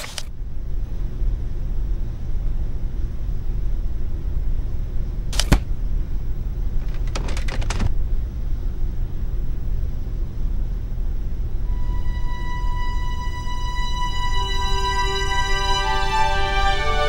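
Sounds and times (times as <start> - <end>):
low steady rumble: 0.0 - 17.0
quick run of clicks: 6.8 - 7.9.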